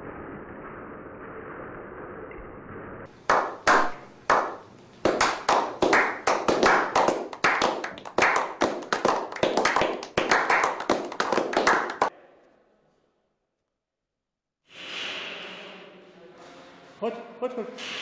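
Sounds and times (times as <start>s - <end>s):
people clapping: 3.1s - 12.1s.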